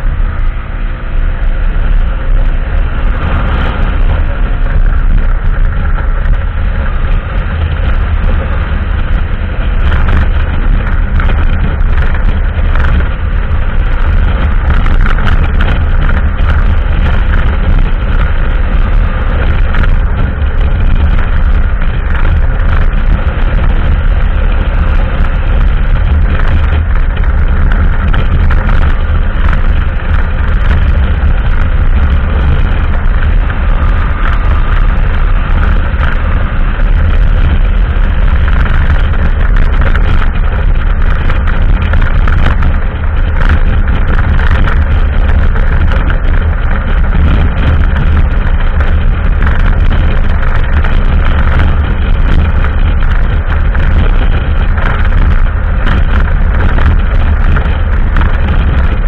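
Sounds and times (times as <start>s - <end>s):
motorcycle running: 0.0s - 59.0s
wind buffeting microphone: 0.0s - 59.0s.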